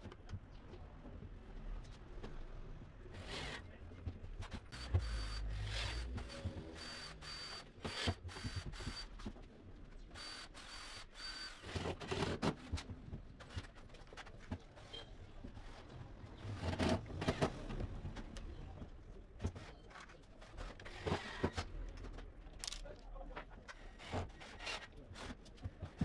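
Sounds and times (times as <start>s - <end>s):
cordless drill driving screws: 4.8s - 9.1s, 10.2s - 12.3s.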